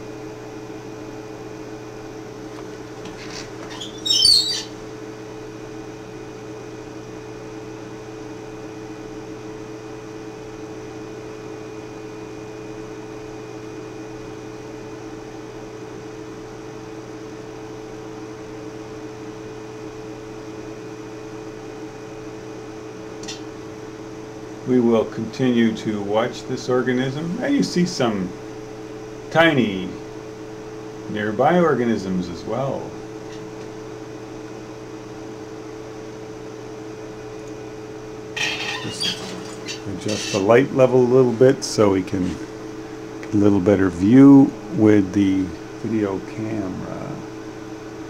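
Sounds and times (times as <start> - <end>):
equipment humming: 0.0 - 7.1, 22.4 - 48.0
high-pitched chirp: 3.8 - 4.7, 38.4 - 40.4.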